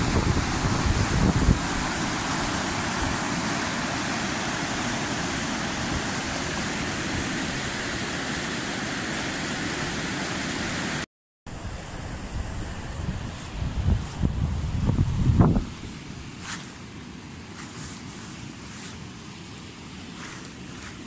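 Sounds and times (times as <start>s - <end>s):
stream rushing over rocks: 0.0s - 11.1s.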